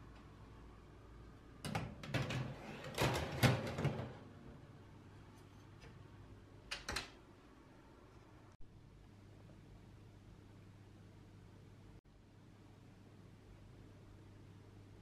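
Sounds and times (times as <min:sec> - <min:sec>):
oven door shutting: 0:01.7 - 0:04.3.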